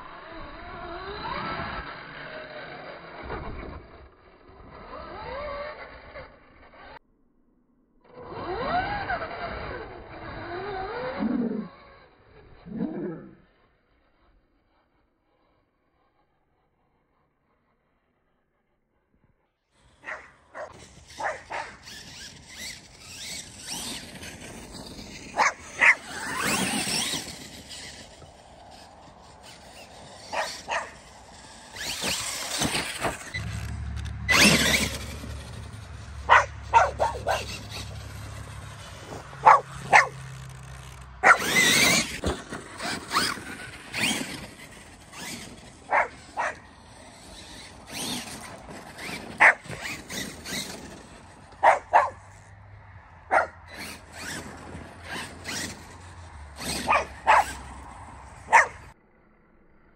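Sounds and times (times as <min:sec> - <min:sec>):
rc truck motor whining: 0:00.0 - 0:59.9
small dog yapping: 0:20.0 - 0:22.0, 0:25.4 - 0:27.2, 0:30.3 - 0:31.0, 0:36.3 - 0:37.8, 0:39.4 - 0:40.2, 0:41.2 - 0:42.1, 0:45.9 - 0:46.6, 0:49.0 - 0:50.6, 0:51.6 - 0:52.2, 0:56.6 - 0:57.6, 0:58.5 - 0:58.8.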